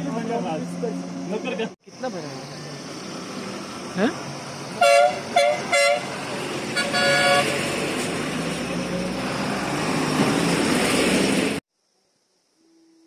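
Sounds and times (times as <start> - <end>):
heavy trucks driving past: 0.0 - 11.6
vehicle horn double toot: 4.8 - 6.2, 6.8 - 7.5.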